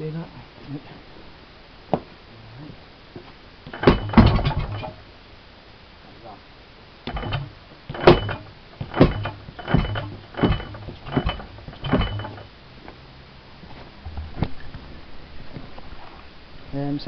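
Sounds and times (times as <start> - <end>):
marine engine firing bangs: 3.7 - 5.0.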